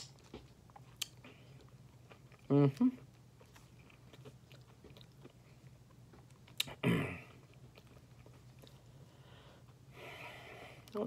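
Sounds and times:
man chewing granola bar: 0.0s - 9.9s
throaty breath: 8.9s - 10.9s.

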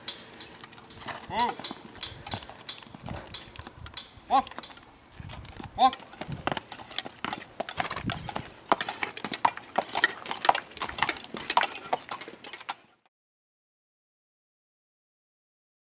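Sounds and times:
horse hooves clip-clopping on dirt: 0.0s - 13.1s.

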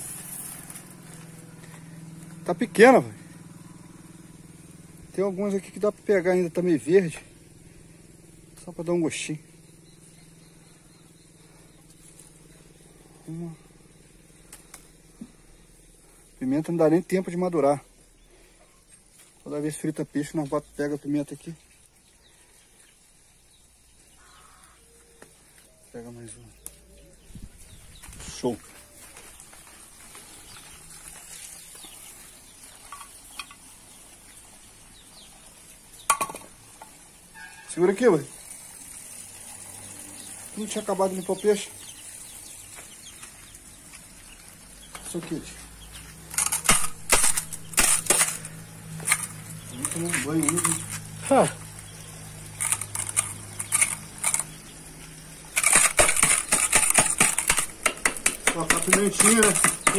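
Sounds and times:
wooden pestle pounding garlic: 55.6s - 59.9s.

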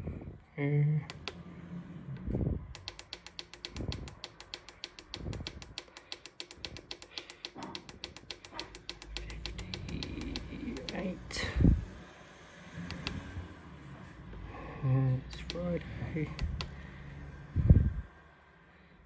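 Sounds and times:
digital controller clicking: 1.1s - 1.4s, 2.7s - 11.2s, 12.9s - 13.3s, 15.3s - 16.8s.

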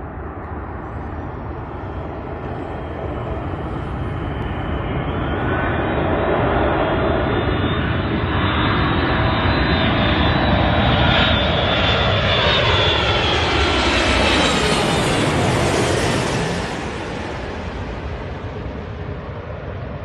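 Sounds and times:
jet plane passing overhead: 0.0s - 20.0s.

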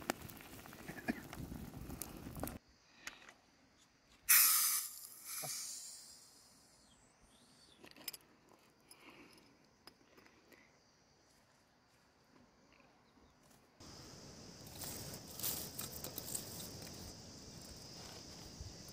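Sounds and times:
fizzy drink bottle gas hiss: 4.3s - 6.4s.

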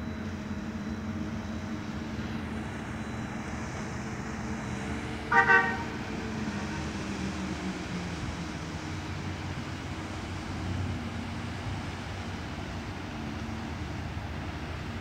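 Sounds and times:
boat horn blast: 5.3s - 6.1s.

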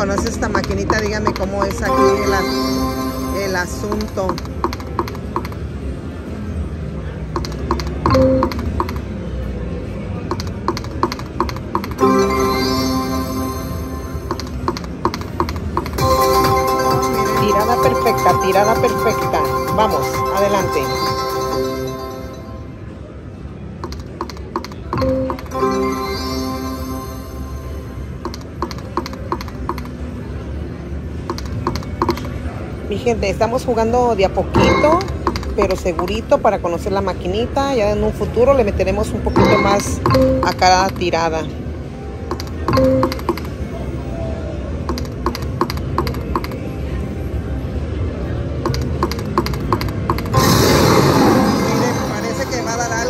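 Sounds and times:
slot machine clicks: 0.0s - 5.6s, 7.3s - 9.1s, 10.3s - 22.3s, 23.8s - 27.2s, 34.5s - 36.1s, 42.3s - 43.6s
multi-note win jingle: 1.8s - 3.9s, 16.0s - 22.8s.

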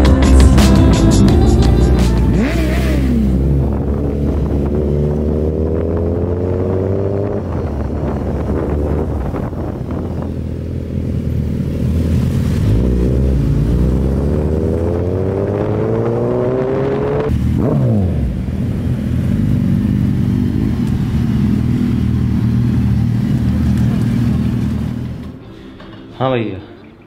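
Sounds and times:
superbike engines accelerating: 0.6s - 25.4s
motorcycle engine idling: 18.2s - 25.3s.

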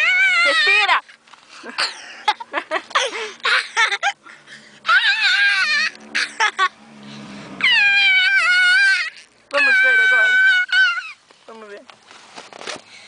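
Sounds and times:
girl wailing: 0.0s - 1.0s, 4.9s - 6.7s, 7.6s - 11.2s
girl laughing: 1.6s - 4.2s, 6.1s - 6.8s.

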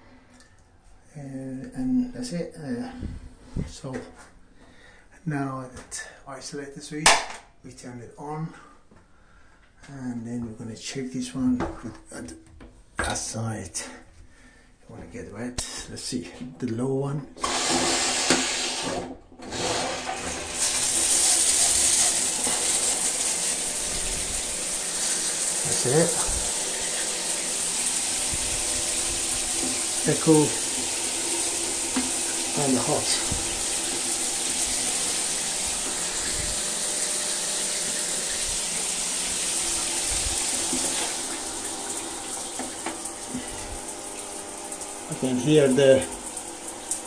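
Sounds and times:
shower spray hissing: 17.4s - 18.9s, 20.5s - 47.0s
heating element humming faintly: 20.4s - 47.0s.

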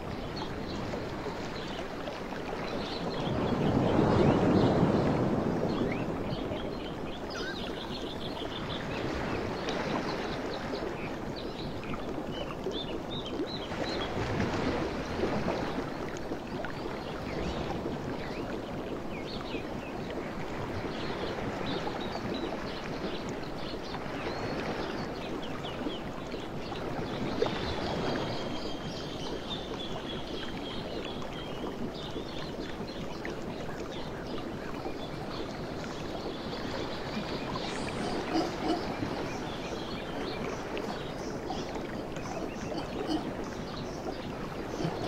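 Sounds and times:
howler monkeys roaring: 37.9s - 39.1s.

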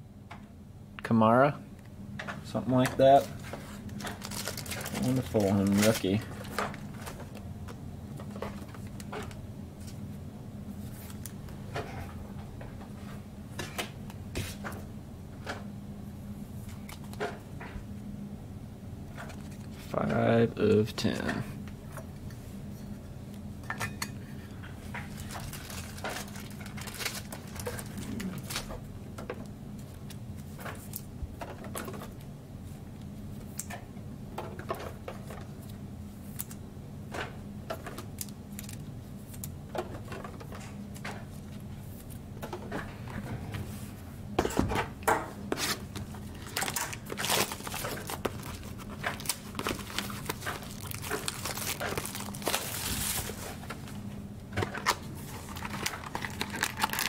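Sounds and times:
faint steady hum: 0.0s - 57.0s
card packs crinkling and rustling: 3.0s - 7.4s, 24.9s - 28.8s, 37.8s - 40.5s, 45.5s - 57.0s
pack wrappers tearing: 3.8s - 6.8s, 25.1s - 28.8s, 38.1s - 39.5s, 46.3s - 53.4s, 54.8s - 57.0s.

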